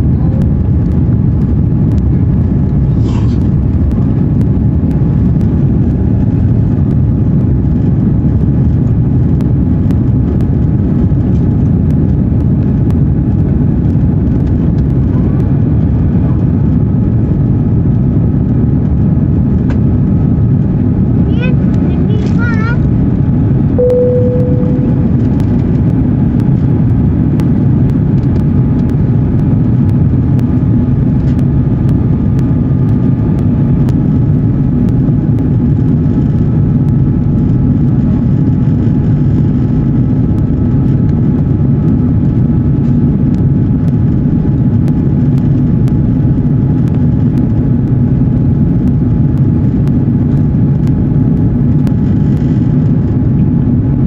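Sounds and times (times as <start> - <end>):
jet engines and airflow rush: 0.0 - 54.0
faint whining tones: 23.8 - 26.2.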